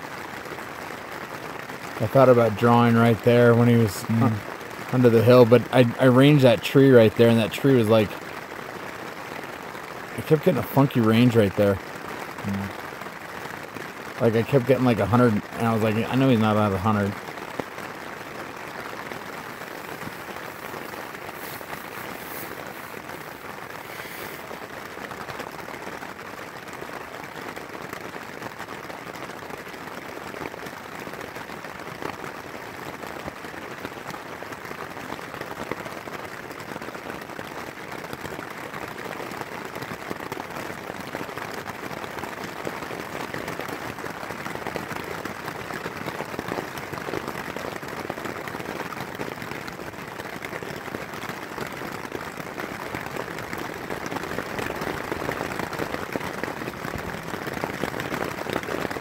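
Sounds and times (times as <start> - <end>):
outdoor background hiss: 1.5 - 25.7.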